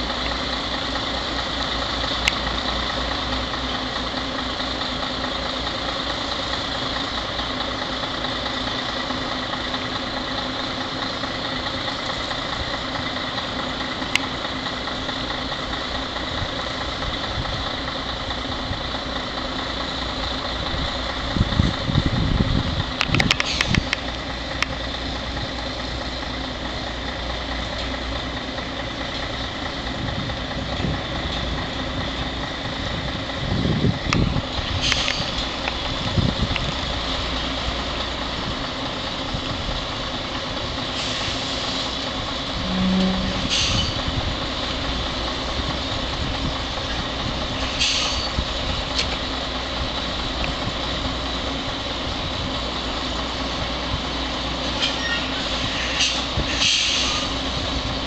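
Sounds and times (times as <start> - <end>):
diesel truck engine idling: 0.0 - 58.0
air brake hisses: 23.4 - 23.8, 34.8 - 35.4, 40.9 - 42.0, 42.7 - 44.0, 47.6 - 48.4, 54.8 - 57.4.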